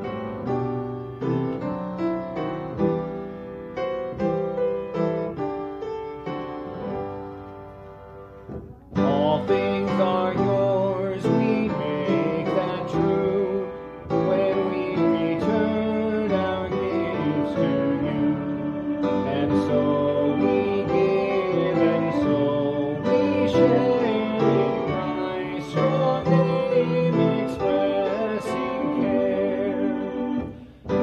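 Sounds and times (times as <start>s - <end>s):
piano accompaniment: 0.0s - 31.0s
voices singing a hymn: 9.0s - 31.0s.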